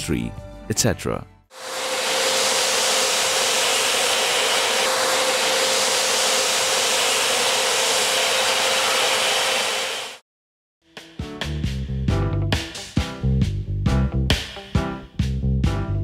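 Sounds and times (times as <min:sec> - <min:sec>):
vacuum cleaner running: 0:01.5 - 0:10.2.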